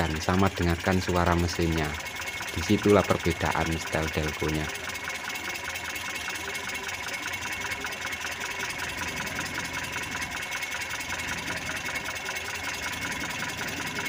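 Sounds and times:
car engine idling with ticking: 0:00.0 - 0:14.0.

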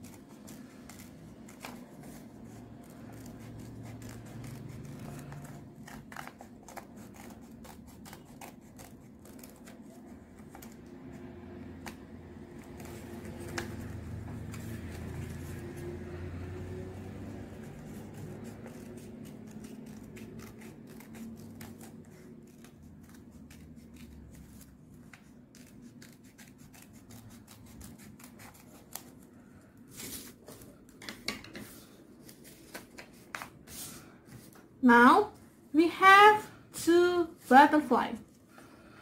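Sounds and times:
paper rustling: 0:00.0 - 0:10.9, 0:11.8 - 0:15.8, 0:18.0 - 0:31.0, 0:31.6 - 0:34.6
scissors snipping paper: 0:00.0 - 0:16.2, 0:17.1 - 0:31.0
low background hum: 0:00.0 - 0:39.0.

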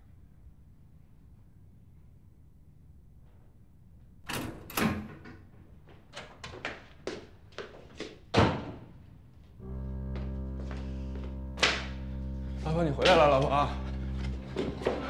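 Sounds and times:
held music chord: 0:09.6 - 0:15.0.

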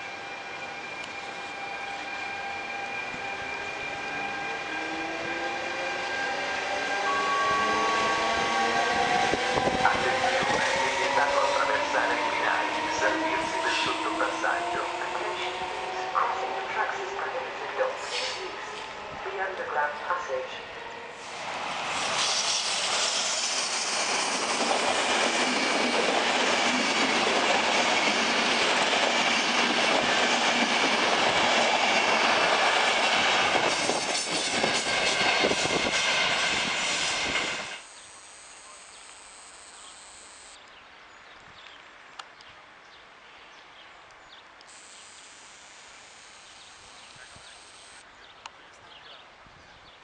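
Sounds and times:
train wheels rushing on rail: 0:00.0 - 0:37.9.

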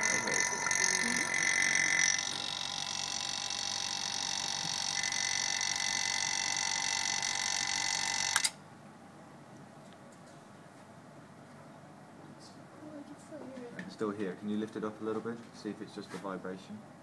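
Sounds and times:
vacuum pump running: 0:00.0 - 0:08.6.

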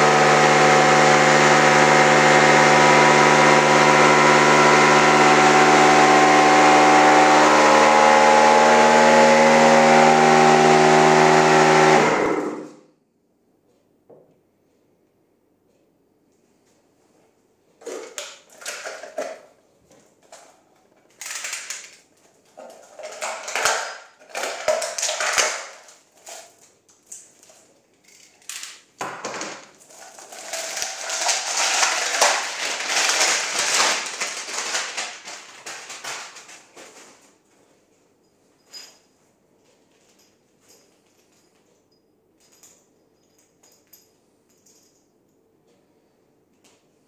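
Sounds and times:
plastic hose rustling and crinkling: 0:29.8 - 0:37.6.

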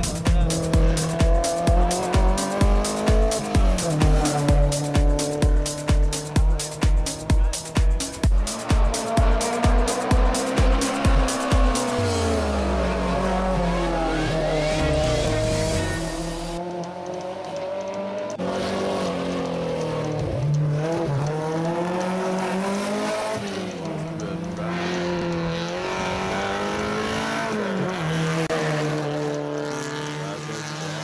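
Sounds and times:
racing car engines revving: 0:00.0 - 0:31.0.

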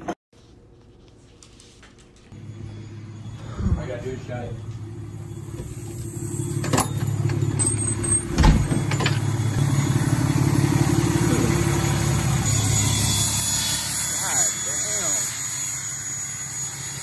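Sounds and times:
truck engine idling: 0:02.4 - 0:12.8.

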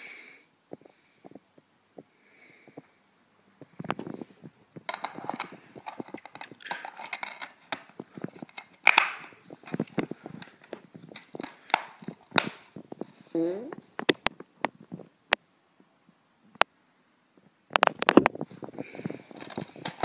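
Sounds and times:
plastic disc case clicks and rustles: 0:04.8 - 0:13.1, 0:13.9 - 0:14.8, 0:17.7 - 0:18.5, 0:19.1 - 0:20.0
sharp plastic clack: 0:04.9 - 0:12.7.

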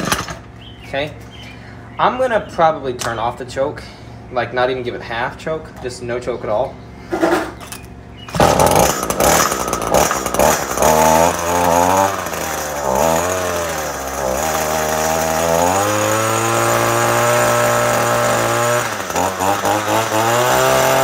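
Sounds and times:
two-stroke engine running: 0:00.0 - 0:00.7, 0:08.1 - 0:21.0.

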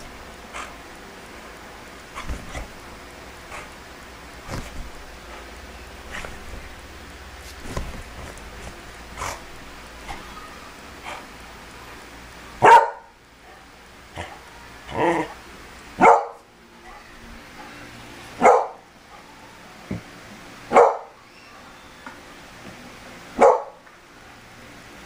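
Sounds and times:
dog barking: 0:12.6 - 0:13.2, 0:16.0 - 0:17.1, 0:18.4 - 0:18.8, 0:20.7 - 0:21.2, 0:23.4 - 0:23.8.

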